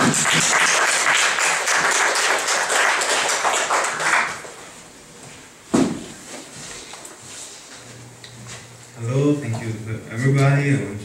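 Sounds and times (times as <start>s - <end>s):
audience applauding: 0.0s - 4.6s
short thump: 5.7s - 6.1s.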